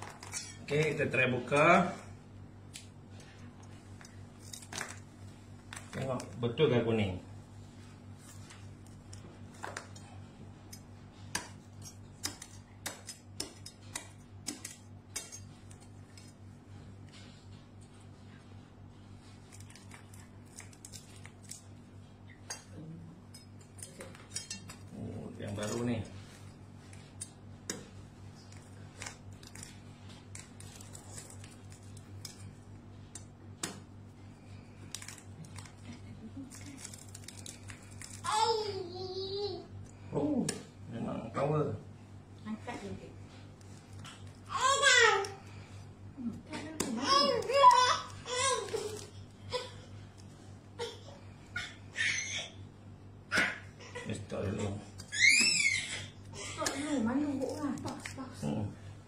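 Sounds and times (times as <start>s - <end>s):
low steady hum: 0.0s - 59.0s
knife chopping fruit husk: 8.1s - 16.4s, 23.6s - 35.8s, 40.3s - 40.7s
husk cracking under knife: 34.8s - 38.3s.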